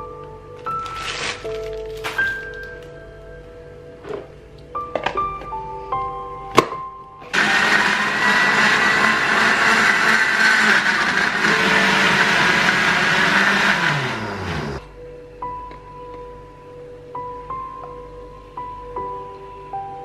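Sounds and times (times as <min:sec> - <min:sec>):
electric blender grinding: 0:07.3 - 0:14.9.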